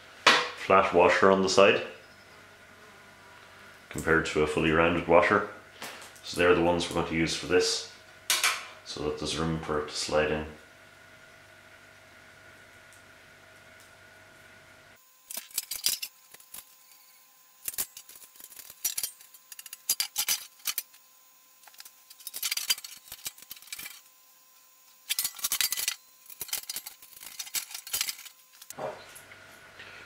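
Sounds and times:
bolts and washers clinking on metal: 17.7 - 21.0, 25.1 - 28.7.

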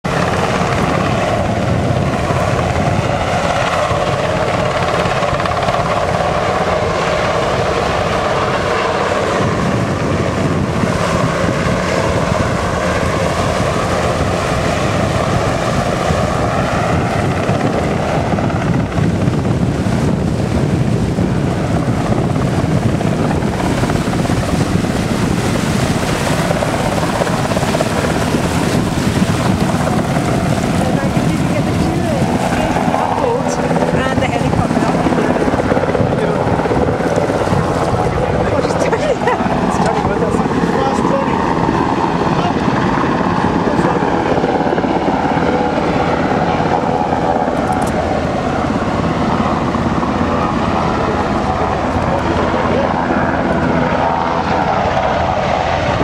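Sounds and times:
helicopter engine whine: 0.0 - 56.0
helicopter rotor noise: 0.0 - 56.0.

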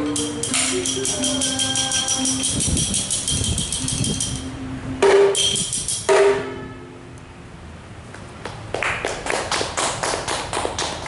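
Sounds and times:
struck notes ringing: 0.0 - 7.2
sharp taps or claps: 8.4 - 11.0.

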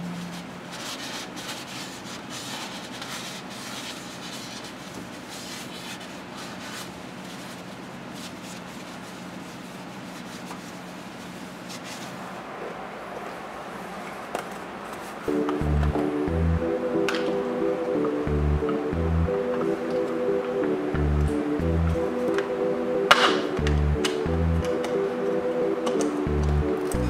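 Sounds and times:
steady low hum: 15.2 - 27.0.

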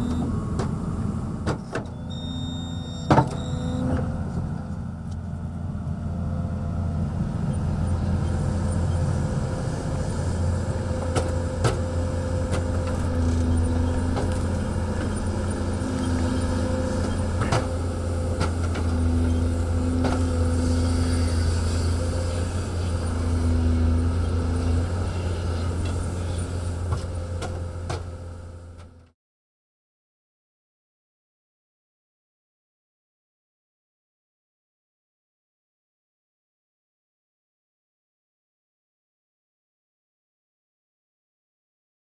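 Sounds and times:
excavator diesel engine under load: 0.0 - 29.1.

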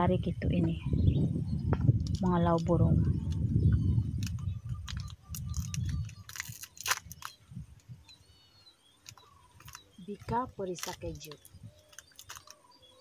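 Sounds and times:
plastic wrapper crinkling: 4.2 - 7.4, 9.0 - 9.8, 10.7 - 12.6.

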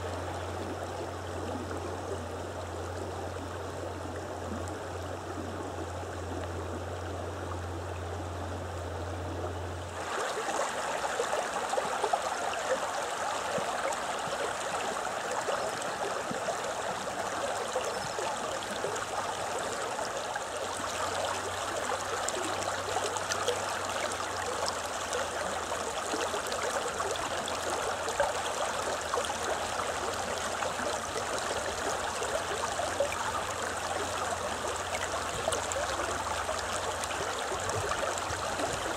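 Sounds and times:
low steady hum: 0.0 - 38.9
river running over stones: 9.8 - 38.9.

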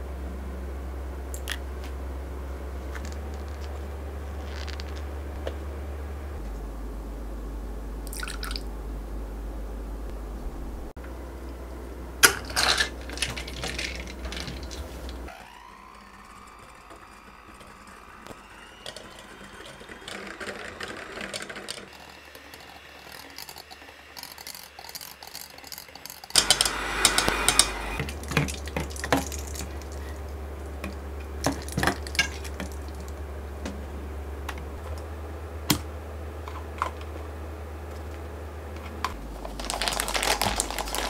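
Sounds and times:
electric hand mixer whine: 15.3 - 34.4.

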